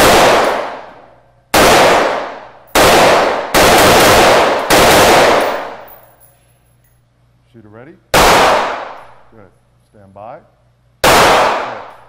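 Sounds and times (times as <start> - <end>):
rifle shots with echo: 0.0 - 5.9, 8.2 - 9.2, 11.0 - 12.0.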